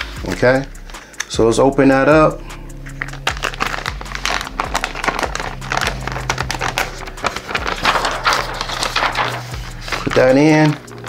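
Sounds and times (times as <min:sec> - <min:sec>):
low hum: 0:02.4 - 0:09.9
plastic bag crinkling: 0:03.0 - 0:11.0.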